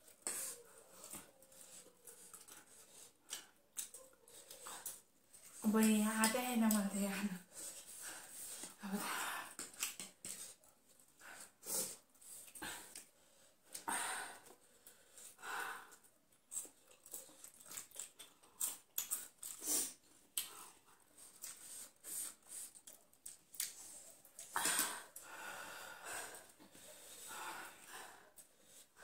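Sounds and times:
wet chewing: 0.0 - 6.9, 14.4 - 25.2
noisy breaths: 23.8 - 29.0.

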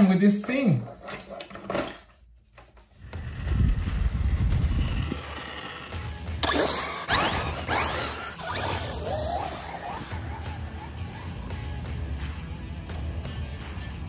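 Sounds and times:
low rattling drivetrain rumble: 3.0 - 12.0
electric motor whining: 3.0 - 12.1.

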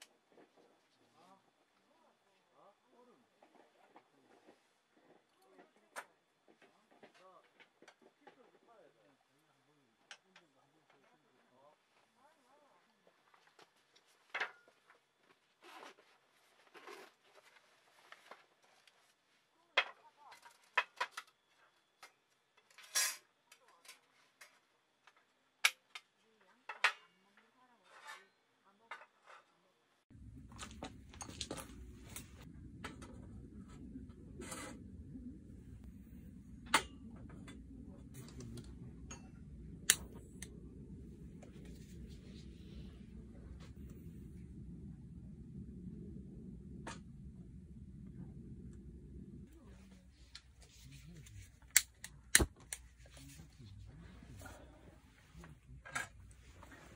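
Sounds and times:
soft rustles: 13.0 - 19.5
low steady rumble: 30.1 - 56.9.

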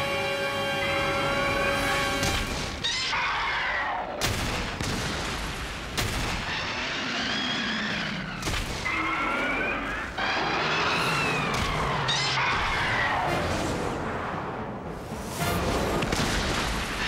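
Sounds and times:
background music: 0.0 - 2.8.

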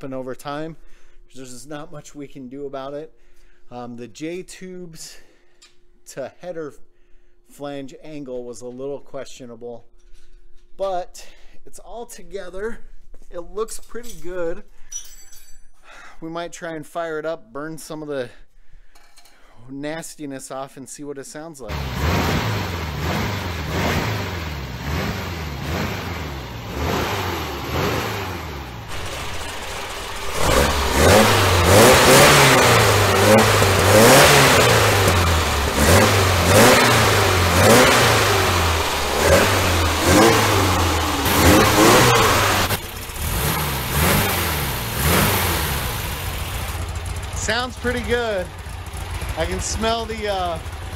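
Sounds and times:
car engine revving: 21.7 - 50.9.

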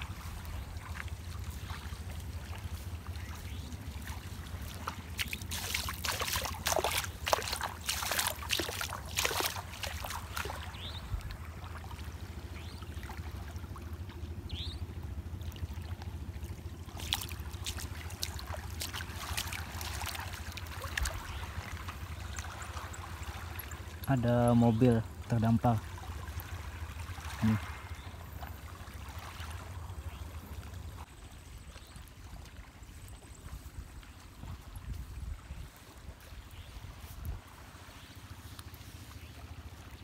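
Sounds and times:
sea water washing over sand: 0.0 - 12.4, 16.8 - 24.2
steady low rumble: 0.0 - 40.0.

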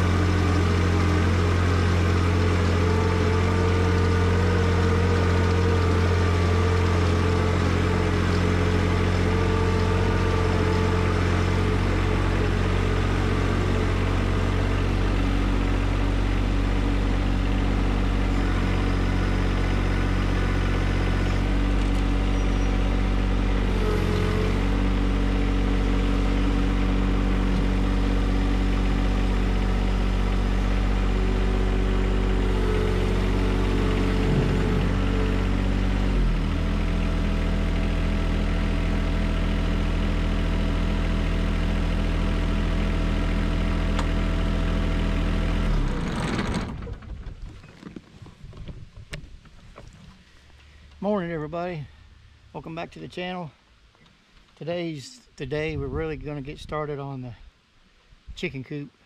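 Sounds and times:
tractor diesel engine running: 0.0 - 57.5.

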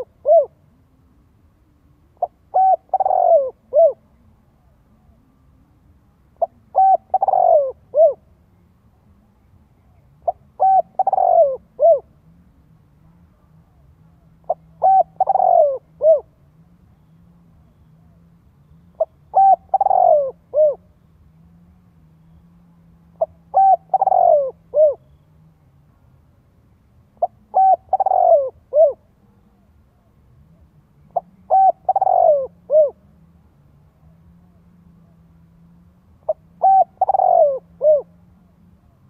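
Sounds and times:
dove cooing: 0.0 - 0.6, 2.2 - 4.3, 6.4 - 8.3, 10.2 - 12.2, 14.4 - 16.4, 18.9 - 20.9, 23.2 - 25.2, 27.2 - 29.2, 31.0 - 33.1, 36.2 - 39.0.

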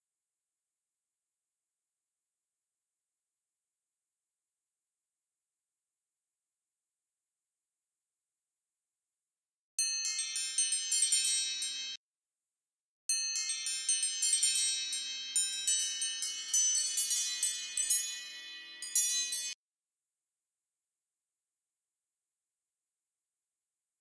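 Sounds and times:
tinkling chimes: 9.8 - 12.0, 13.1 - 19.6.

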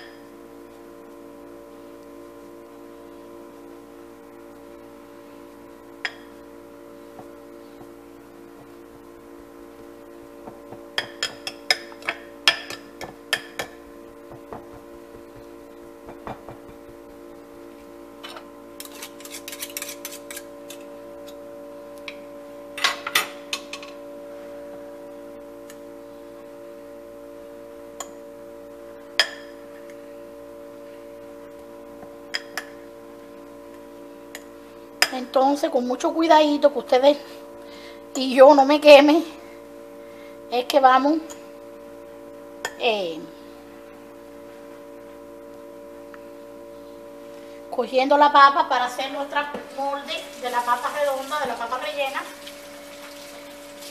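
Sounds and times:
steady hum of held tones: 0.0 - 53.8.

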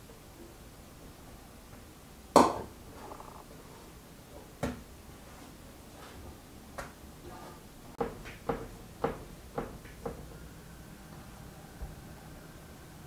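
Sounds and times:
dough knocking on wooden board: 8.0 - 10.2.

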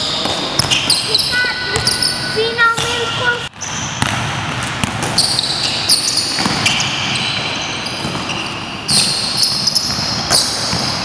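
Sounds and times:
sneakers squeaking on floor: 0.0 - 11.0
basketball bouncing: 0.2 - 11.0.

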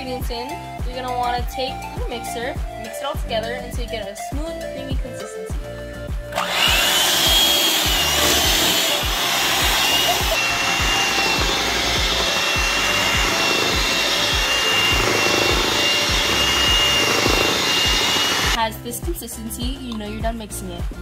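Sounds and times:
electric hand mixer whining: 6.3 - 18.6.

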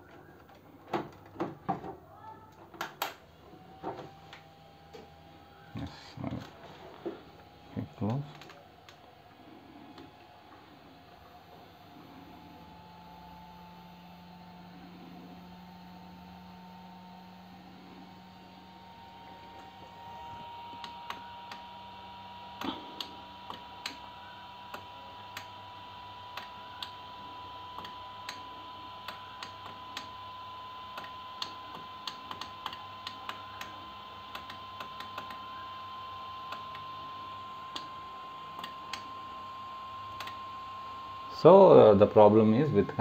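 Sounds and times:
faint high whine: 4.8 - 25.5.

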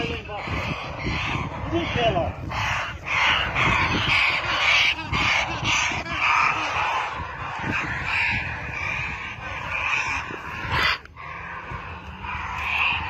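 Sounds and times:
parrots squawking in distress: 0.0 - 13.0.

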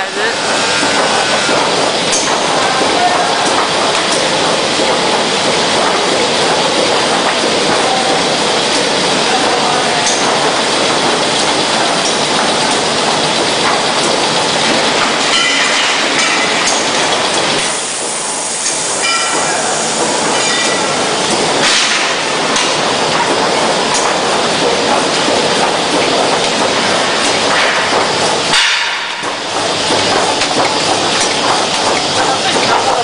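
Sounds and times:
cutting machine clattering: 0.0 - 33.0.

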